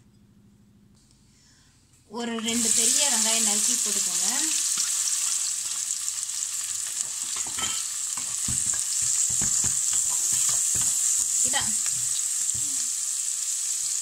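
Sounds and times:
onions sizzling in hot oil: 2.4s - 14.0s
spatula scraping and knocking pan: 6.8s - 12.7s.

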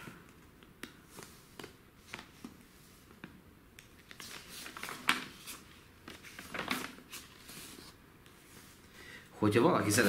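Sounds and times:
paper rustling: 4.0s - 8.8s.

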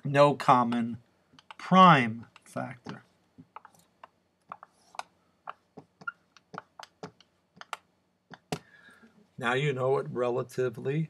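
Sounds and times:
marker squeaking on whiteboard: 1.4s - 8.6s.

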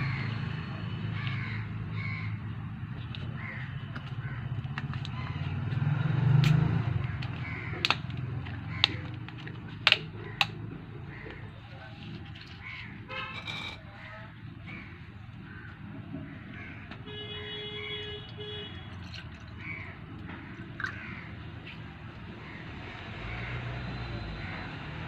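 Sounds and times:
plastic bottle cap clicking: 7.2s - 10.6s.

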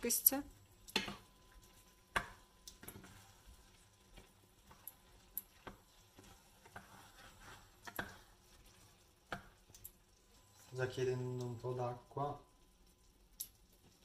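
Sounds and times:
spoon tapping a pan: 0.8s - 3.2s, 7.8s - 8.3s, 9.3s - 10.0s.

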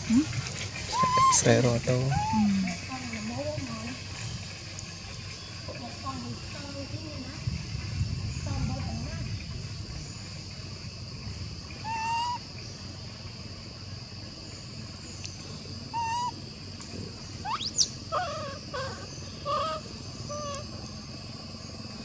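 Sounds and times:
high-pitched background hum: 0.0s - 22.0s
short animal calls: 0.9s - 1.5s, 11.8s - 12.4s, 15.9s - 16.4s, 17.4s - 20.8s.

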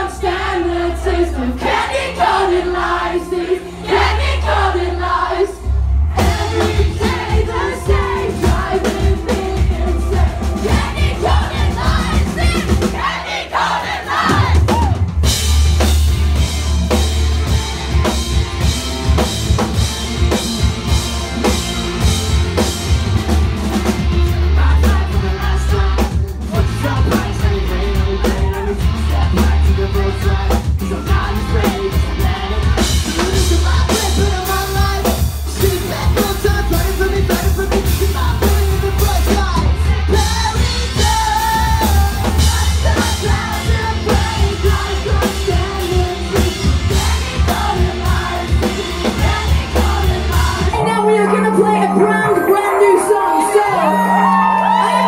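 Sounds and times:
bass guitar: 0.0s - 55.0s
drum kit: 1.6s - 55.0s
electric guitars: 14.4s - 55.0s
person singing: 24.4s - 55.0s.

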